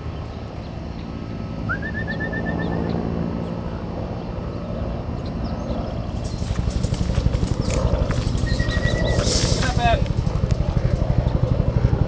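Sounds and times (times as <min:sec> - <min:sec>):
low outdoor rumble: 0:00.0 - 0:12.0
small bird trilling: 0:07.5 - 0:09.3.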